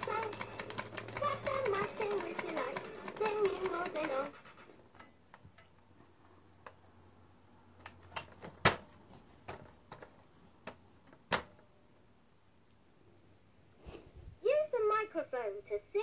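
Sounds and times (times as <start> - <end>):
plastic toy buttons clicking: 0.0 - 4.4.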